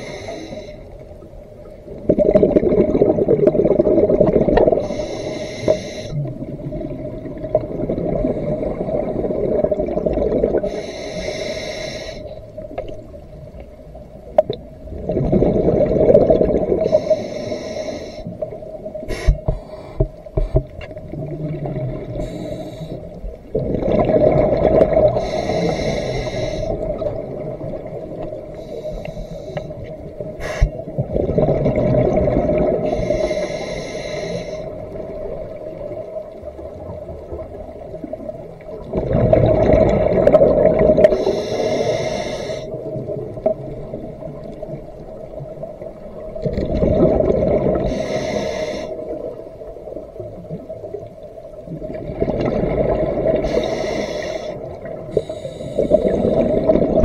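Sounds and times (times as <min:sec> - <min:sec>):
scuba regulator breathing: 0:00.0 - 0:01.0, 0:04.6 - 0:06.3, 0:10.6 - 0:12.4, 0:16.8 - 0:18.5, 0:19.1 - 0:20.7, 0:22.1 - 0:23.2, 0:25.0 - 0:27.0, 0:28.5 - 0:30.8, 0:32.6 - 0:34.9, 0:41.0 - 0:42.8, 0:47.7 - 0:49.3, 0:53.3 - 0:57.0
exhaled bubbles rushing: 0:01.9 - 0:04.9, 0:06.2 - 0:10.8, 0:14.4 - 0:17.0, 0:21.0 - 0:22.2, 0:23.2 - 0:25.4, 0:30.1 - 0:32.9, 0:34.8 - 0:41.2, 0:42.7 - 0:48.0, 0:51.6 - 0:53.6, 0:55.8 - 0:57.0.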